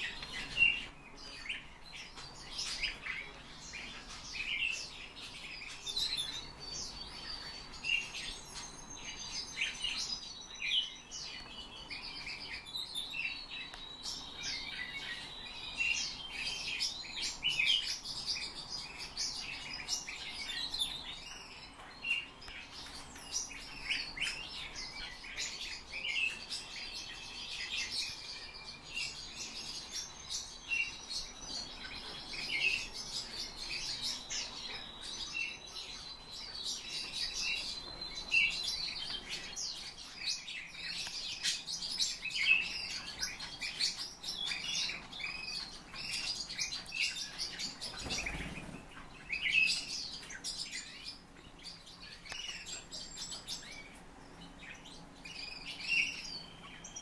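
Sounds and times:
pet birds chirping: 0.0s - 57.0s.

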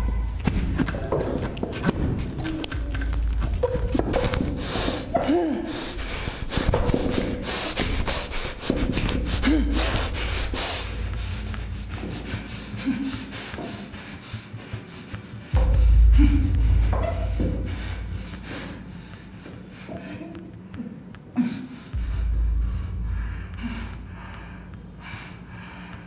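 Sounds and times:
clicks and rubbing: 0.4s - 5.1s
heavy breathing through nose: 0.4s - 20.4s, 21.6s - 26.0s
low steady rumble: 8.4s - 13.3s, 15.5s - 19.4s, 21.9s - 26.0s.

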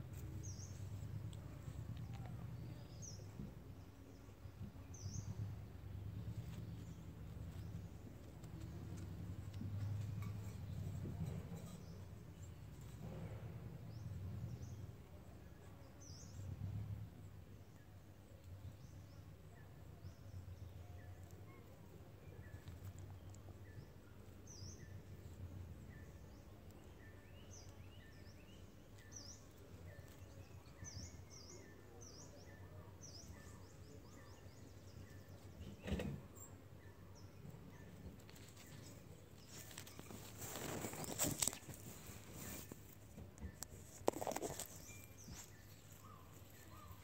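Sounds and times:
fur rustling against microphone: 38.1s - 47.0s.

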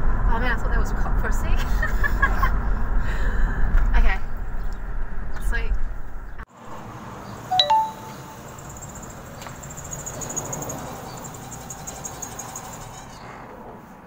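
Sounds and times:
van engine chirring: 7.1s - 13.4s
sharp chirp: 7.5s - 9.0s.

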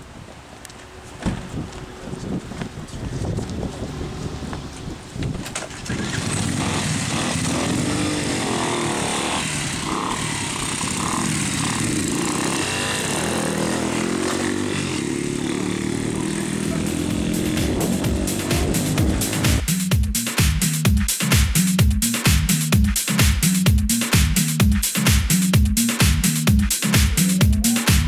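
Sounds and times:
motorcycles revving and pulling away: 0.8s - 19.7s.

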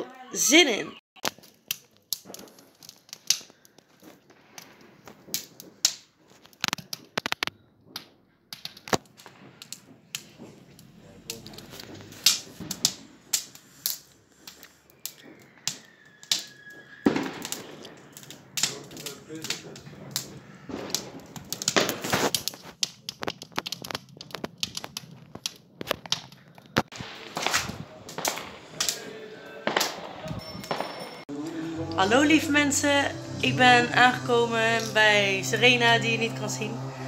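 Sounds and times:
firecrackers banging and popping: 1.2s - 37.0s
falling whistle: 14.9s - 18.1s.

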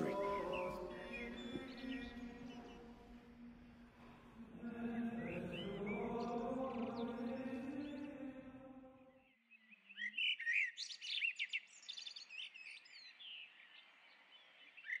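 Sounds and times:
birds chirping and singing: 0.0s - 3.8s, 4.4s - 8.6s, 9.5s - 15.0s
sung chant: 0.0s - 9.3s.

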